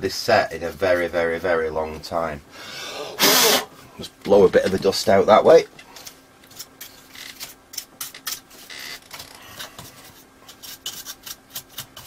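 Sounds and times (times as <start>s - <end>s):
brush scrubbing dust: 9.8s - 12.0s.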